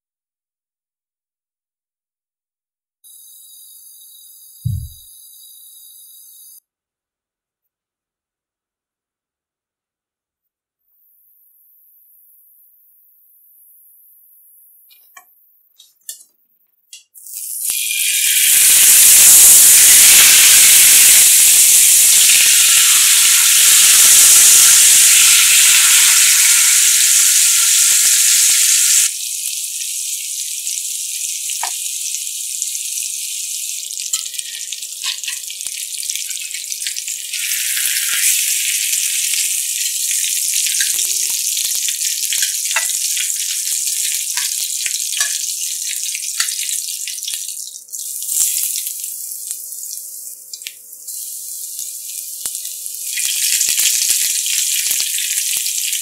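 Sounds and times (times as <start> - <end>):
fish sizzling in hot oil: 3.1 - 6.6, 17.0 - 56.0.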